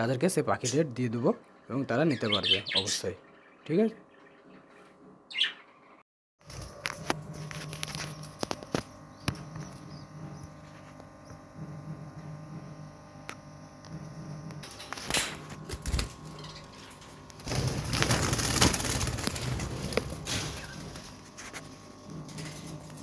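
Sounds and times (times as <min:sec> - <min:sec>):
wings fluttering: 0:06.4 - 0:11.6, 0:14.6 - 0:23.0.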